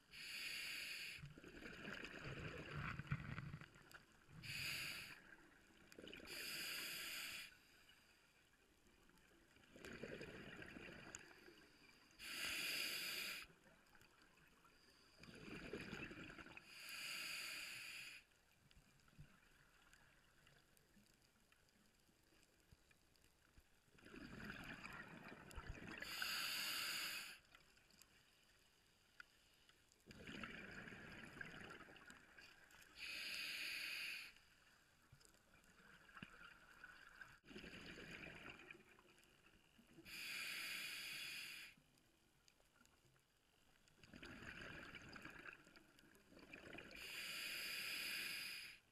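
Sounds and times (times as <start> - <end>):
diver breathing through regulator: 6.3 - 7.8, 12.2 - 13.5, 16.6 - 18.3, 26.0 - 27.5, 33.0 - 34.4, 40.0 - 41.8, 47.0 - 48.9.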